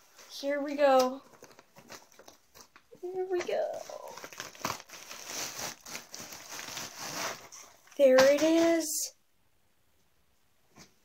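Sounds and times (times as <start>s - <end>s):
plastic packaging crinkling: 1.0s - 8.8s.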